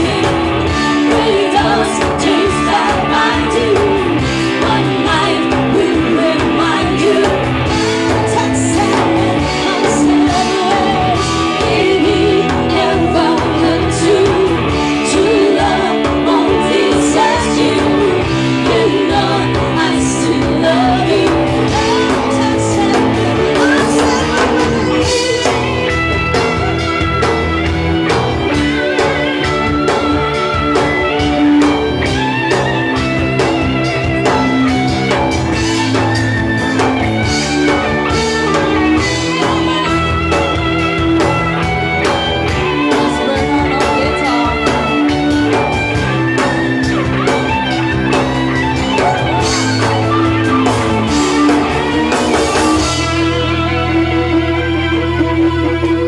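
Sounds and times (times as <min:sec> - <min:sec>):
woman singing: 0:00.0 - 0:26.3, 0:42.2 - 0:45.9
drum kit beat: 0:00.0 - 0:55.4
electric guitars: 0:00.0 - 0:56.0.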